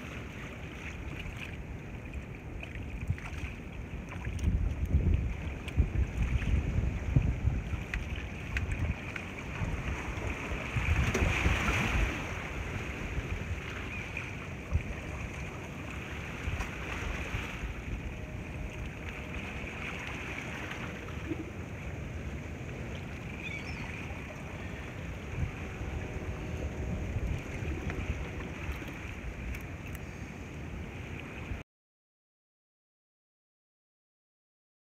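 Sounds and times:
wind buffeting microphone: 0:01.0 - 0:19.7, 0:24.5 - 0:31.6
waves washing against rocks: 0:04.4 - 0:18.4.

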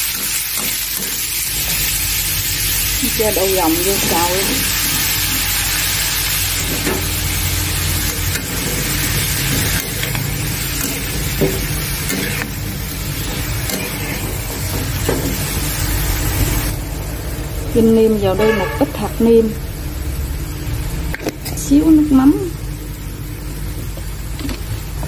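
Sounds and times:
food sizzling in a wok: 0:00.0 - 0:25.0
spatula scraping a wok: 0:03.3 - 0:16.7.

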